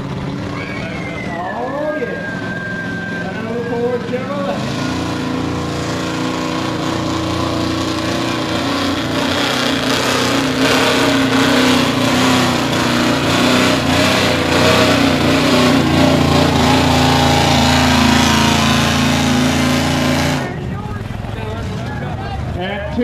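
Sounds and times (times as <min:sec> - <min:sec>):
pickup engine at high revs: 0:01.8 - 0:22.4.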